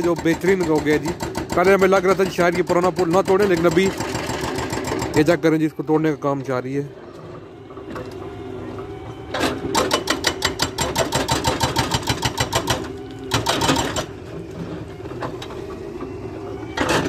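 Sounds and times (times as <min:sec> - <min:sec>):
hydraulic breaker hammering concrete: 0:00.0 - 0:05.4, 0:09.4 - 0:14.2
engine drone: 0:00.0 - 0:17.0.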